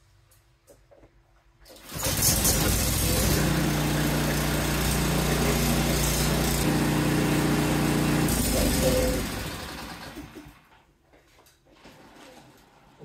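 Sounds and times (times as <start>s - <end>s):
small engine starting and running: 1.8s - 10.6s.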